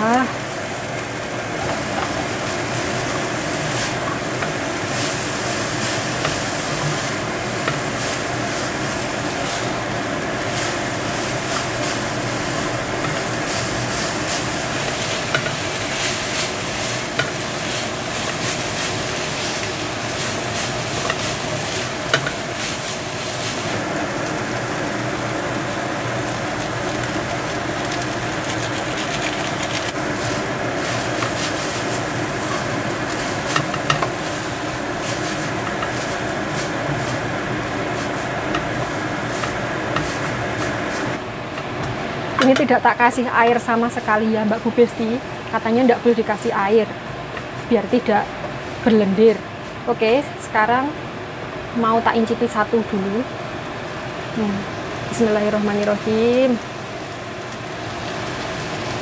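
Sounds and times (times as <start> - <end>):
cooker hood fan: 0.0 - 59.0
vegetables sizzling in oil: 0.0 - 59.0.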